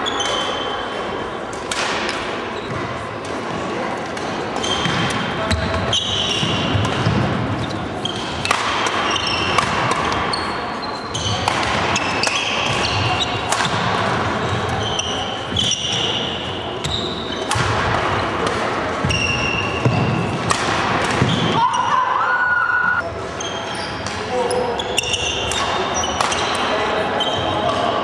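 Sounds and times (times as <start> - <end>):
rackets striking shuttlecock: 1.5 - 3.4, 8.1 - 10.3, 11.2 - 14.8, 17.4 - 21.5, 25.0 - 26.6.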